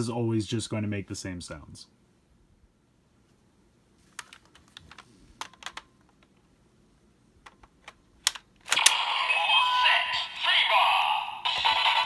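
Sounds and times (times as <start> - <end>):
plastic toy belt clicks and snaps: 7.4 - 9.0
electronic toy sound effects: 8.7 - 12.0
music from toy speaker: 8.8 - 12.0.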